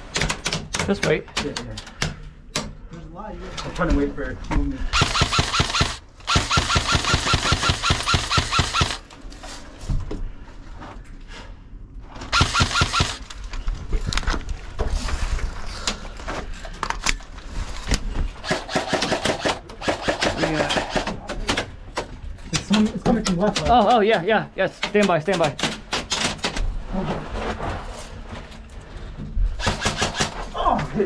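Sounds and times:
airsoft rifle firing bursts: 0:04.9 - 0:09.0, 0:12.3 - 0:13.3, 0:18.4 - 0:21.0, 0:29.6 - 0:30.4.

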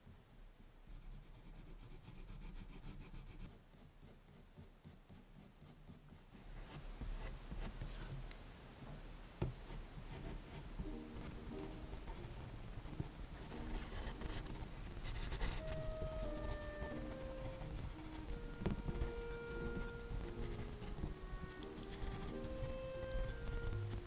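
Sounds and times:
pencil scratching on paper: 0:00.9 - 0:08.2, 0:10.1 - 0:24.0
pencil tap: 0:12.9 - 0:24.0.

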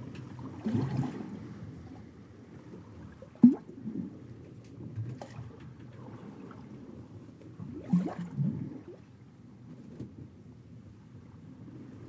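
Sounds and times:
water slopping and bubbling: 0:00.0 - 0:09.2
gurgling water surge: 0:00.4 - 0:01.6, 0:03.1 - 0:04.2, 0:07.6 - 0:09.1.

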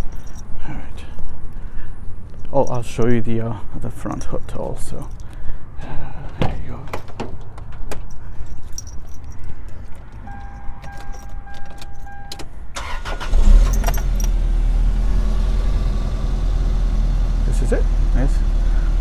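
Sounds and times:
keys jingling in ignition: 0:00.0 - 0:03.3, 0:03.9 - 0:05.6, 0:06.7 - 0:14.4
dashboard warning tone: 0:10.2 - 0:13.0
car starter cranking: 0:10.3 - 0:14.5.

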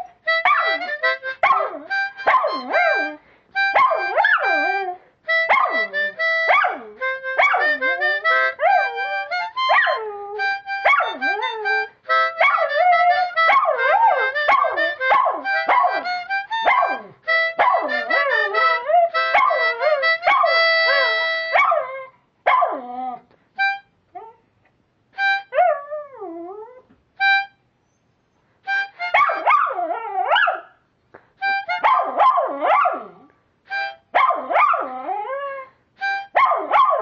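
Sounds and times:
harmonica playing: 0:00.0 - 0:21.6, 0:23.6 - 0:24.0, 0:25.2 - 0:25.6, 0:27.2 - 0:27.7, 0:28.6 - 0:29.5, 0:31.4 - 0:31.9, 0:33.7 - 0:34.2, 0:36.0 - 0:36.4
dog howling: 0:03.8 - 0:05.0.

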